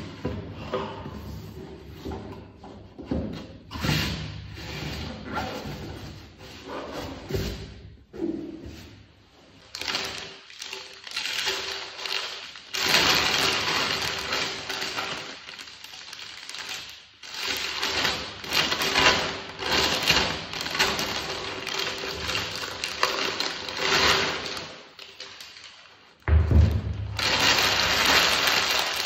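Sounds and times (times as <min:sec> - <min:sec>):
plastic bag crinkling: 0:09.7 - 0:26.2, 0:27.1 - 0:29.0.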